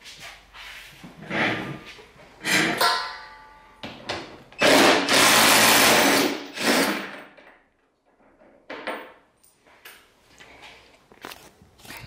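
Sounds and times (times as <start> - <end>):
impact driver whirring: 4.6 - 7.1.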